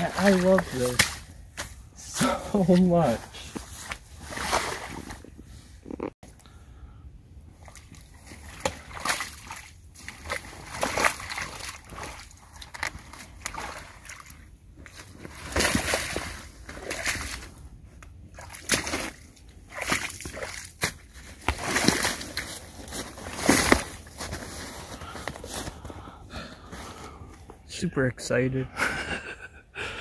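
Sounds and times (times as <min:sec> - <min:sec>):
boots splashing through water: 0:00.0 - 0:01.3, 0:02.2 - 0:05.2, 0:07.6 - 0:17.6, 0:18.3 - 0:24.4
carcass dragged through water: 0:07.6 - 0:17.6.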